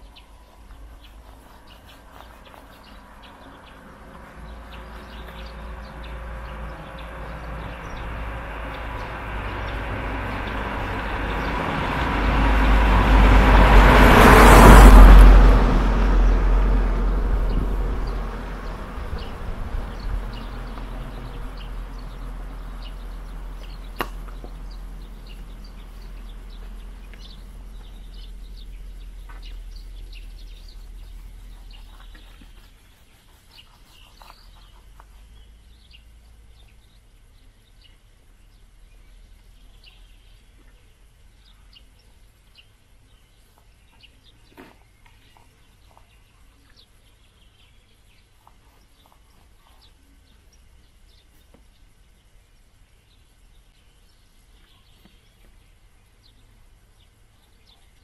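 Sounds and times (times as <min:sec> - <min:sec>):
faint birds chirping: 0:00.0 - 0:14.9, 0:16.2 - 0:58.0
vehicle passing rumbling: 0:02.8 - 0:32.6.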